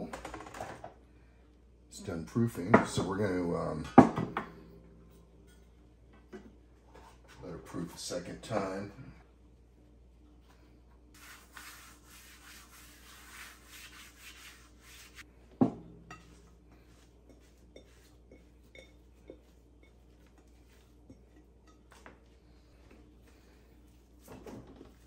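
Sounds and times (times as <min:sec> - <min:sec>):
glass bowl knock: 0:04.0 - 0:05.6, 0:15.6 - 0:16.4
hand rubbing flour on a mat: 0:11.2 - 0:15.2, 0:19.3 - 0:21.0.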